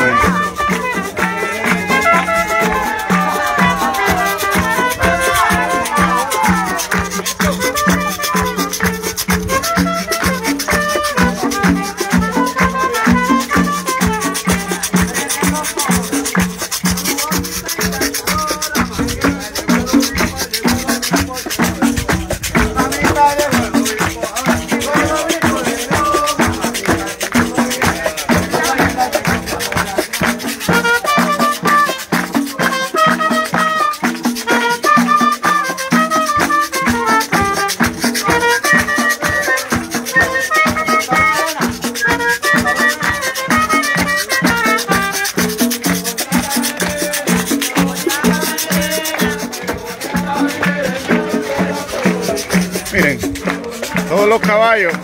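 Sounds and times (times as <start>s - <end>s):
trumpet melody: 0.0s - 15.9s, 30.6s - 47.3s
shaker rattling: 0.0s - 55.0s.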